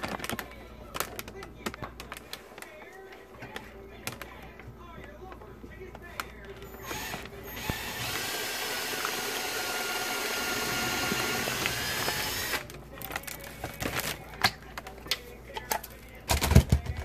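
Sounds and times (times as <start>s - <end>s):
cordless drill boring: 6.8s - 12.7s.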